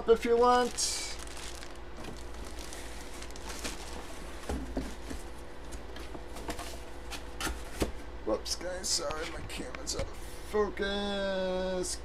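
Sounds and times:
low steady hum: 0:00.0 - 0:12.0
box rustling on table: 0:01.2 - 0:06.8.

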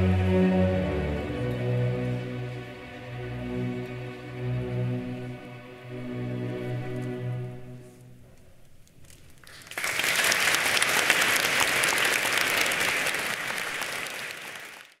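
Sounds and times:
audience applause: 0:09.4 - 0:15.0.

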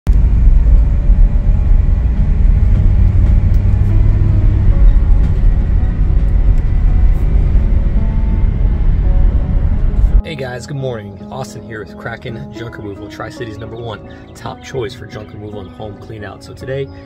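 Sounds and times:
vehicle engine and tyres rumbling: 0:00.0 - 0:10.6.

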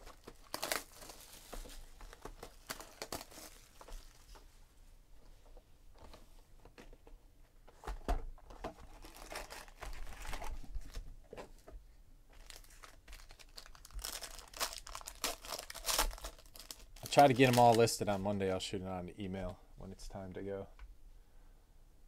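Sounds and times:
foil card pack crinkling: 0:00.0 - 0:04.4, 0:08.8 - 0:11.0, 0:12.3 - 0:18.2.

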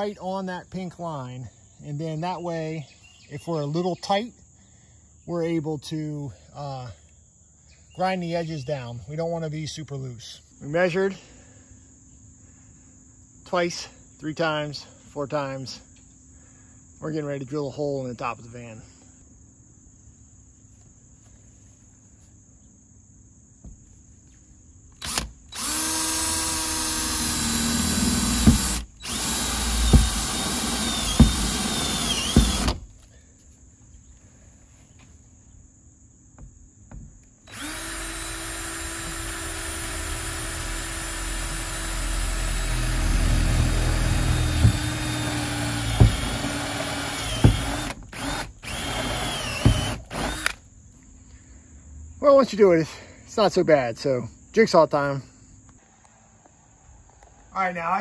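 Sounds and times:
electric drill boring through sheet steel: 0:25.0 - 0:32.8, 0:37.5 - 0:50.6.

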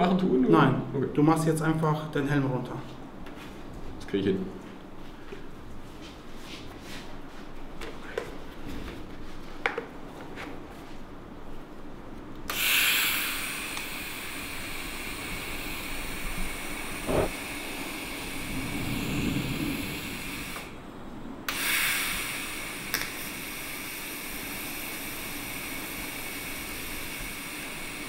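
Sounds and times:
welding torch hissing: 0:12.5 - 0:20.8, 0:21.5 - 0:28.0.

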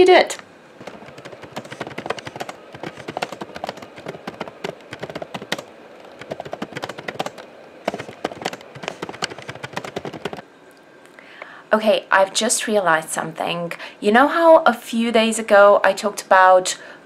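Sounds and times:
fast typing on laptop keyboard: 0:00.8 - 0:10.4.

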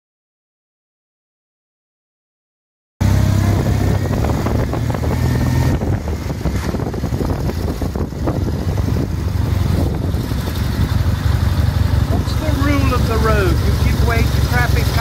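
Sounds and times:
road rumble: 0:03.0 - 0:15.0
vehicle engine running: 0:03.0 - 0:15.0
wind on microphone: 0:03.1 - 0:14.0.

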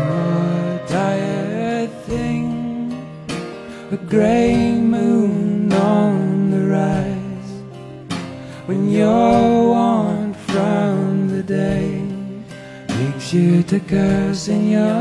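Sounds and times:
long bending melody notes: 0:00.0 - 0:06.8
acoustic guitar: 0:00.0 - 0:15.0
folk-rock band music: 0:00.0 - 0:15.0.

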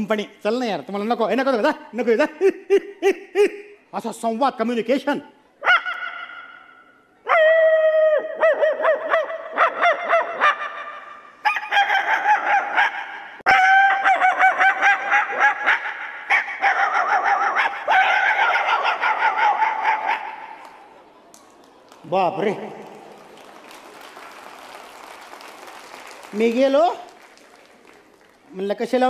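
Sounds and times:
man imitating bird calls: 0:02.2 - 0:03.8.

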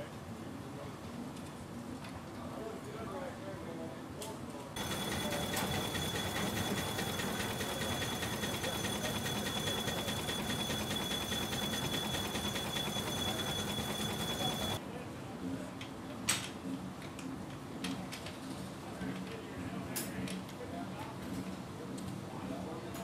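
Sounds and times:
steam engine running: 0:04.8 - 0:14.8.

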